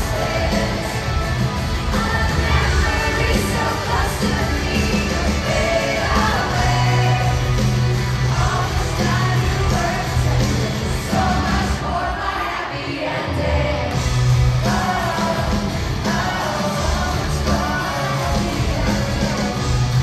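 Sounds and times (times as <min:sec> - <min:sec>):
live pop-rock band playing: 0:00.0 - 0:12.3, 0:13.4 - 0:20.0
woman singing lead vocal: 0:01.8 - 0:07.6, 0:08.2 - 0:14.0, 0:14.6 - 0:19.6.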